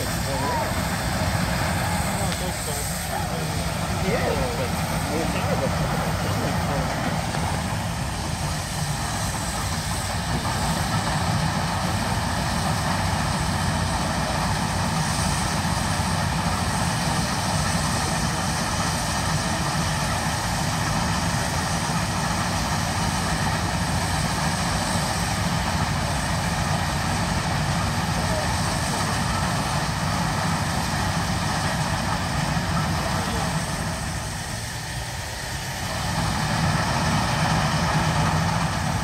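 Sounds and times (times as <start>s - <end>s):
steam engine rushing exhaust: 0.0s - 39.0s.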